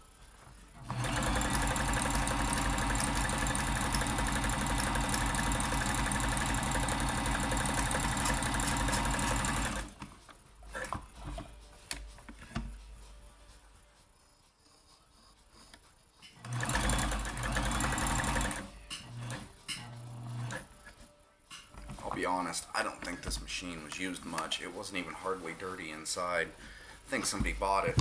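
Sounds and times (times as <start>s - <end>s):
sewing machine running: 0.8s - 10.0s, 16.4s - 20.6s.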